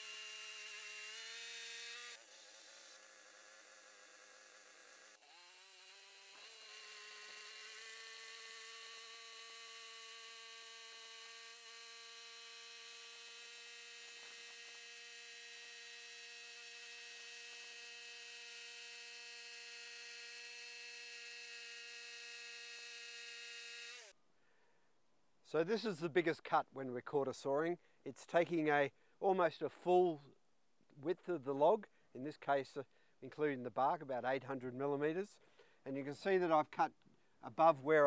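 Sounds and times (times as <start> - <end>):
bandsaw cutting log: 0.0 - 24.2.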